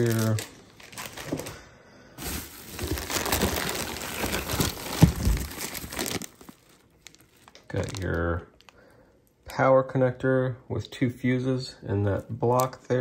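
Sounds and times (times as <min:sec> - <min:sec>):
bubble wrap crinkling: 0:00.0 - 0:01.6, 0:02.2 - 0:08.8.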